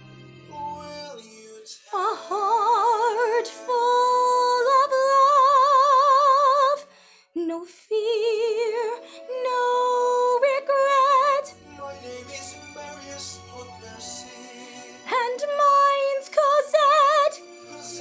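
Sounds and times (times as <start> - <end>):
woman singing with vibrato: 1.9 - 11.5, 15.0 - 17.4.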